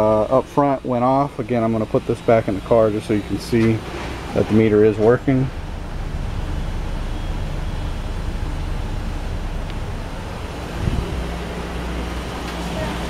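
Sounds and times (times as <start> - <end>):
car engine rumbling: 0.0 - 13.0
short low thump: 5.0 - 11.8.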